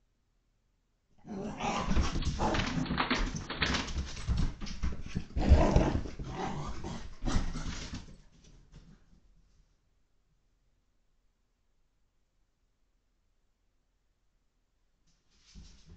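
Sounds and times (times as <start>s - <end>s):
puppy growling: 1.2s - 3.1s, 5.1s - 8.0s.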